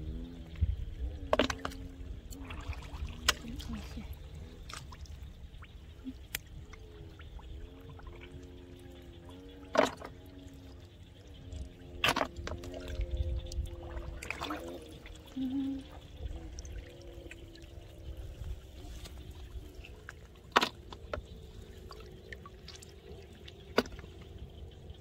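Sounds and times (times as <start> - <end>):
hands sloshing in shallow water: 13.7 - 15.2.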